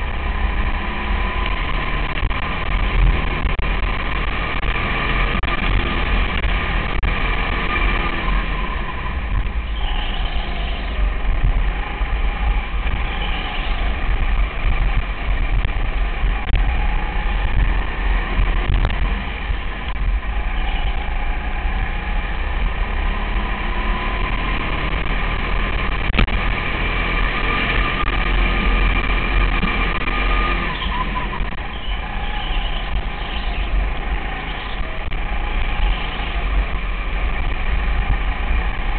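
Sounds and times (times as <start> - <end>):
go-kart engine droning: 0.0 - 38.9.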